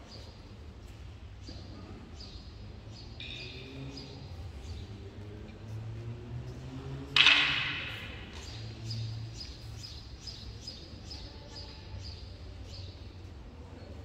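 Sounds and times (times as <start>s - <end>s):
wooden weapons clacking: 7.2s - 8.6s.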